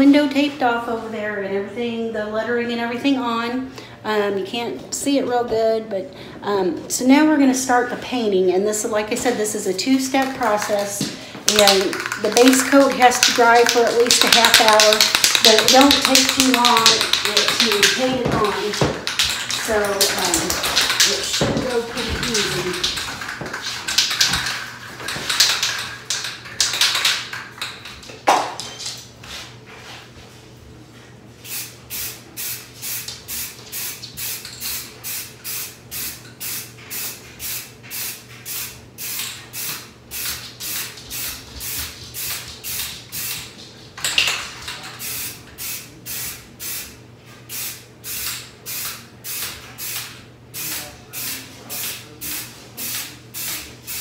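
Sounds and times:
aerosol spray hissing: 0:31.4 - 0:43.4, 0:45.0 - 0:54.0.

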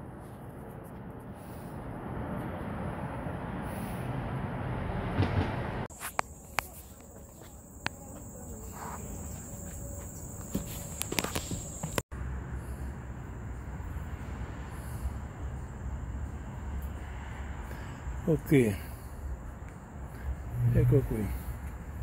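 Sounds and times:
footsteps: 0:05.2 - 0:12.0
high-pitched insect trill: 0:05.9 - 0:12.0.

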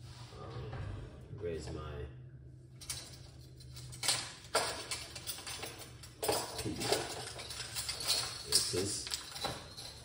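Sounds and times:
kitchen items clattering: 0:02.8 - 0:10.0.

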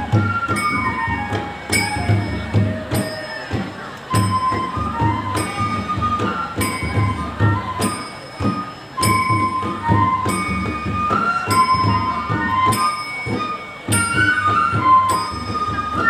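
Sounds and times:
bamboo flute melody: 0:00.0 - 0:16.0
steady drum beats: 0:00.0 - 0:16.0.

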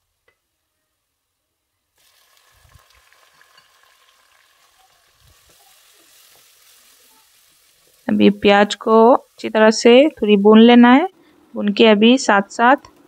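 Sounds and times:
onion frying in hot oil: 0:02.0 - 0:11.1.

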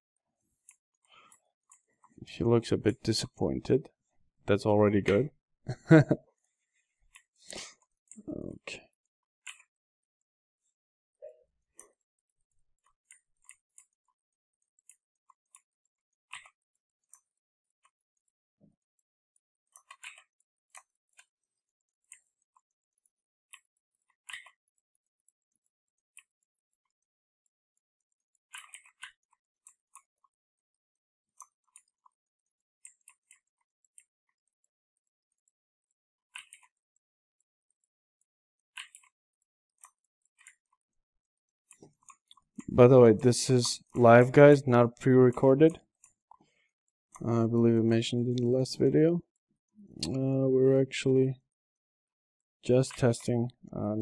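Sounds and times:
computer mouse and keyboard clicks: 0:16.3 - 0:18.3, 0:19.7 - 0:27.1, 0:27.8 - 0:30.7, 0:31.4 - 0:37.1, 0:37.7 - 0:47.3, 0:52.7 - 0:53.4.

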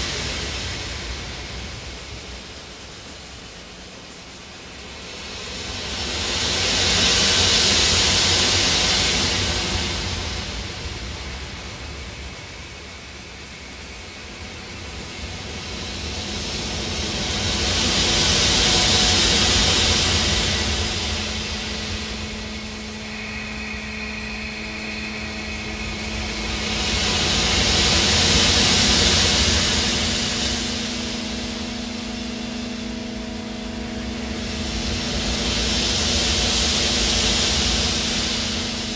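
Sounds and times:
rushing hiss-like noise: 0:00.0 - 0:38.9
steady low rumble: 0:00.0 - 0:38.9
ambient drone music: 0:12.7 - 0:38.9.

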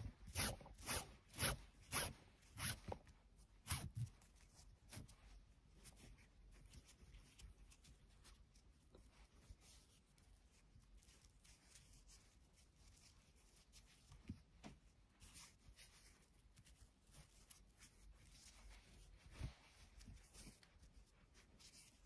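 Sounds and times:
cord rubbing between fingers: 0:00.0 - 0:08.5
cord zipping through plastic buckle: 0:00.2 - 0:03.0.

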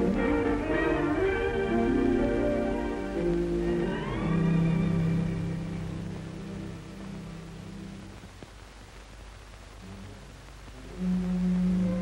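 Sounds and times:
film score music: 0:00.0 - 0:08.1.

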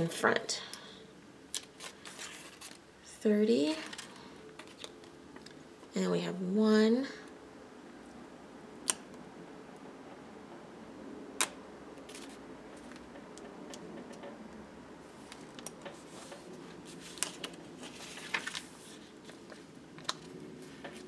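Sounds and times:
sticker paper crinkling: 0:16.3 - 0:20.4.

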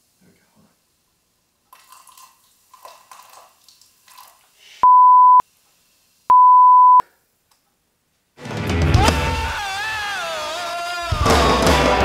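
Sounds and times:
censor bleeps: 0:04.8 - 0:05.4, 0:06.3 - 0:07.0.

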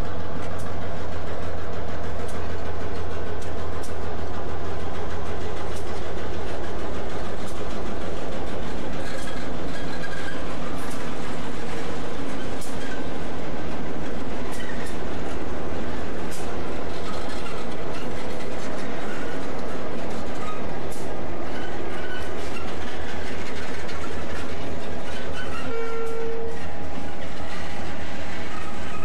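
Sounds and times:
locomotive engine humming: 0:00.0 - 0:29.0
wheels clicking over rail joints: 0:00.0 - 0:29.0
faint wheel squeal: 0:09.0 - 0:10.9, 0:21.5 - 0:26.7, 0:28.3 - 0:29.0.

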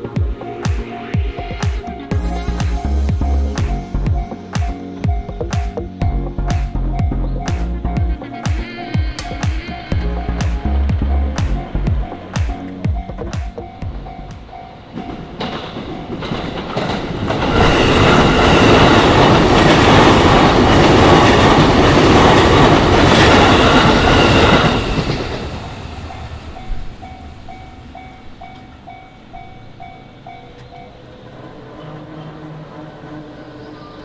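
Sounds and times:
crossing warning bell ringing: 0:00.0 - 0:31.9
train wheels clattering: 0:07.5 - 0:31.0.

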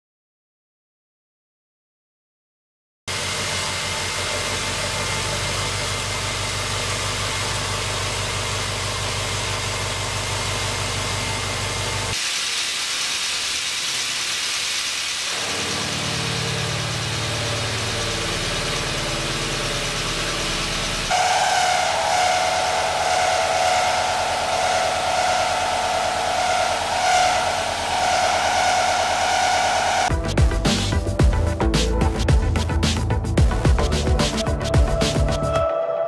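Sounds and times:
high-pitched end mill cutting: 0:03.1 - 0:30.2.

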